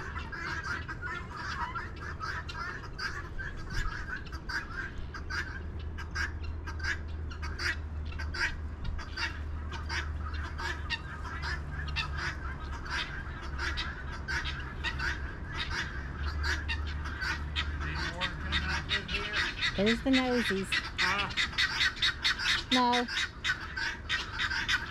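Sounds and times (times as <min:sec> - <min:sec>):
fowl calling harshly: 0:00.0 - 0:24.9
steady low hum: 0:00.0 - 0:24.9.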